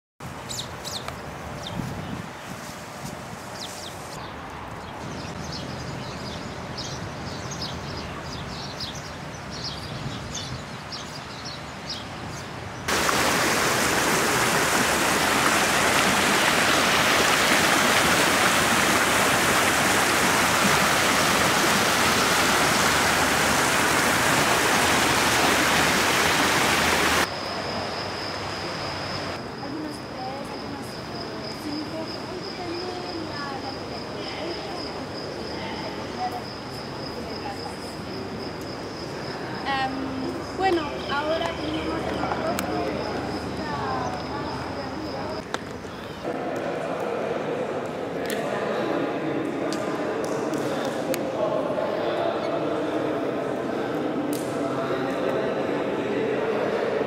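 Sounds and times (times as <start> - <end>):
fountain jets splashing: 12.9 - 27.3, 40.2 - 45.8.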